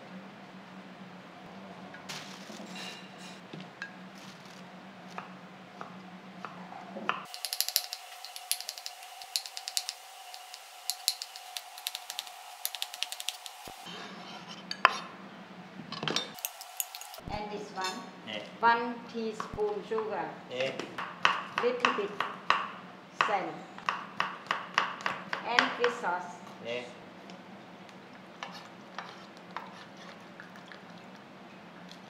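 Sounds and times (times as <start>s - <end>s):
low steady hum: 0.0s - 23.9s
knife chopping on wooden board: 20.7s - 26.0s.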